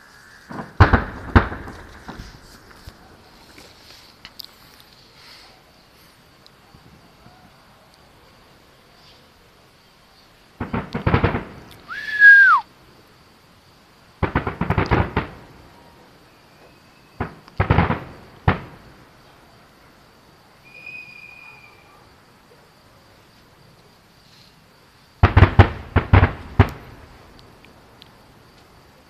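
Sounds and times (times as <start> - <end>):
falling firework whistle: 0.0 - 2.7, 10.6 - 12.7, 14.4 - 18.1, 20.6 - 21.9
firework bangs and crackles: 0.0 - 4.8, 6.6 - 7.7, 10.4 - 12.6, 14.1 - 19.3, 25.2 - 28.8.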